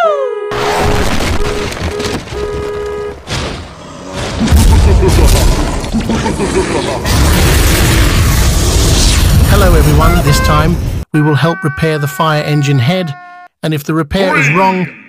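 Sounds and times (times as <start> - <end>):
booming and rumbling effects: 0.5 - 11.0
repeated steady tone: 1.3 - 3.4.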